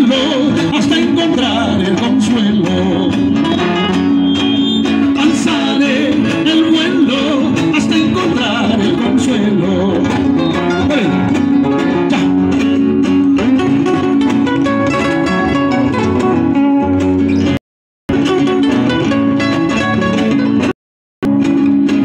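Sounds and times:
acoustic guitars playing: 0:00.0 - 0:22.0.

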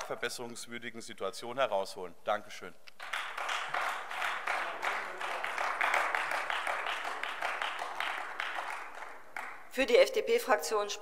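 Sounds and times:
crowd applauding: 0:03.0 - 0:09.6.

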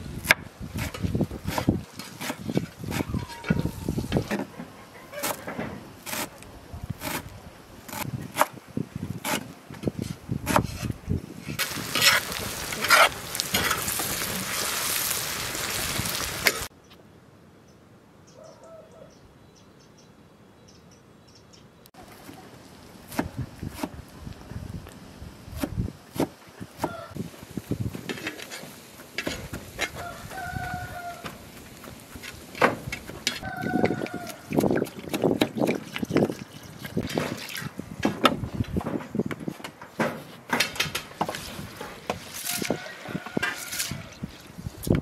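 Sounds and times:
knife chopping on wooden board: 0:10.4 - 0:10.9, 0:23.1 - 0:23.9, 0:25.6 - 0:27.0
onions sizzling in hot oil: 0:11.6 - 0:16.7.

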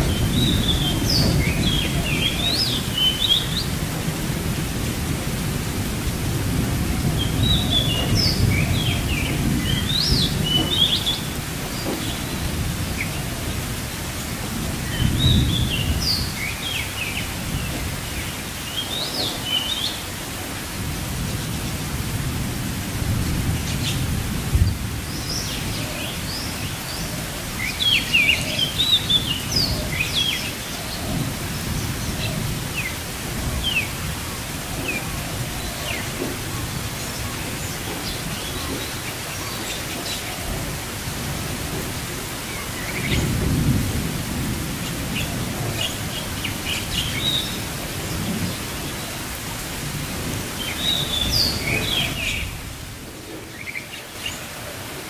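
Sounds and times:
small birds chirping: 0:00.0 - 0:03.8, 0:07.0 - 0:13.6
rain hiss: 0:00.0 - 0:55.0.

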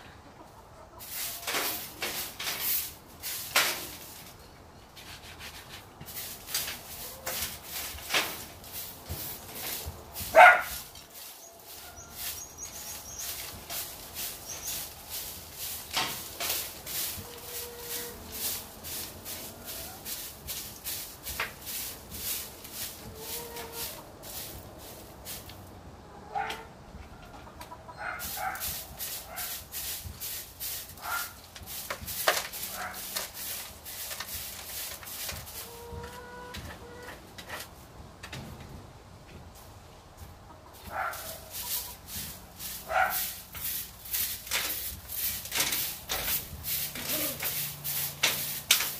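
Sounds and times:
broom scraping dirt floor: 0:00.9 - 0:25.7, 0:28.0 - 0:38.8, 0:39.4 - 0:48.9
hens calling: 0:06.5 - 0:25.4, 0:32.4 - 0:37.3, 0:40.4 - 0:48.4
dog barking: 0:10.3 - 0:10.8, 0:26.3 - 0:26.7, 0:28.0 - 0:28.6, 0:31.0 - 0:31.4, 0:40.9 - 0:41.4, 0:42.9 - 0:43.3.

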